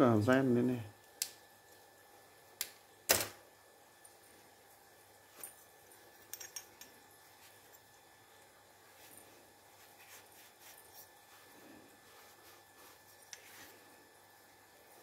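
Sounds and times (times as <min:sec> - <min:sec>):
metal clicks and taps: 0:06.3 - 0:06.9.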